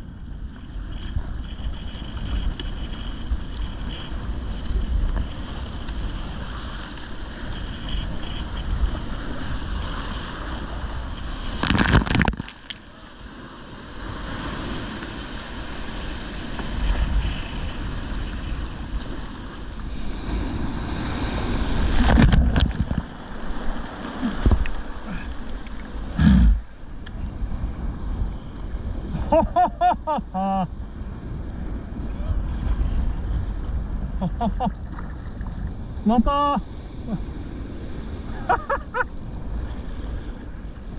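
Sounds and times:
surf breaking over rocks: 0.8 - 26.9.

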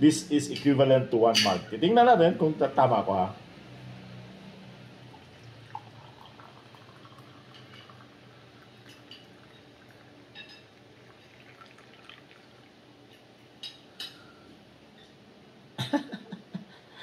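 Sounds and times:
coffee trickling into mug: 5.0 - 13.3.

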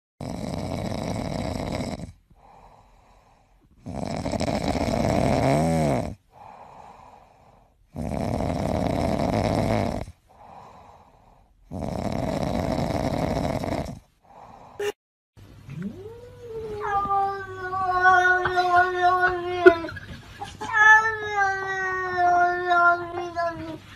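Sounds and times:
cat snoring: 0.2 - 14.5.

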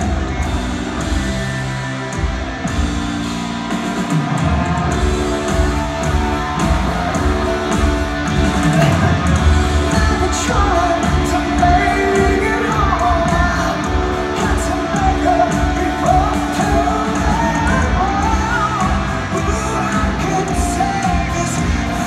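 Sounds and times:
rock band playing live: 0.0 - 22.0
male lead vocal: 8.3 - 22.0.

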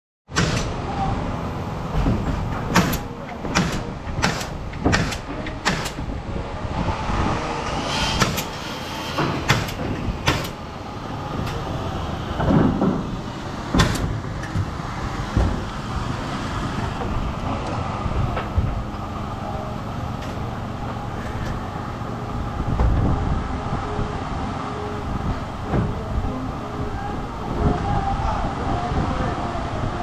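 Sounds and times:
nail gun firing into wood: 0.4 - 0.7, 2.7 - 6.0, 9.5 - 10.6, 13.7 - 14.1.

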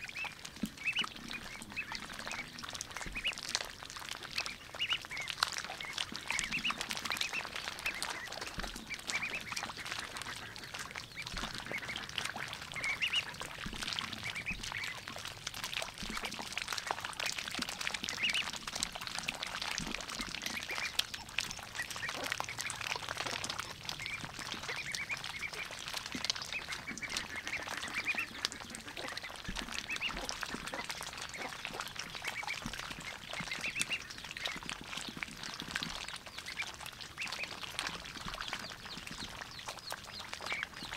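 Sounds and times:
duck bills clicking and slurping: 0.0 - 40.9
ducklings peeping: 0.0 - 40.9.

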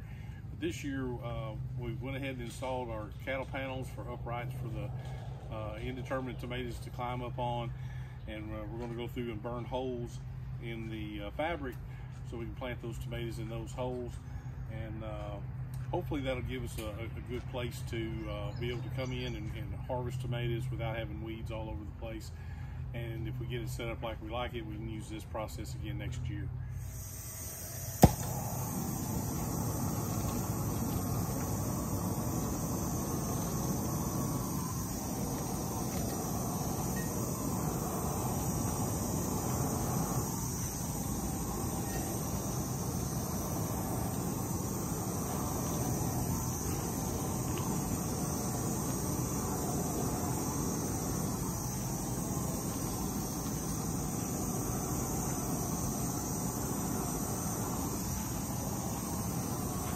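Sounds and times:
propane torch hissing: 26.7 - 59.9.

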